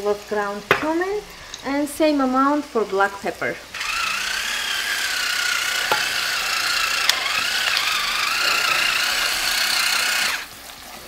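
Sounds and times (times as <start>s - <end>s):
electric pepper grinder whining: 3.7s - 10.5s.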